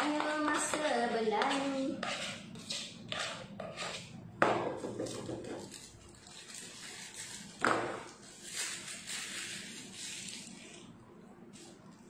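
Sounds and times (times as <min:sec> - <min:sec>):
knock on steel worktop: 0:04.4 - 0:05.6.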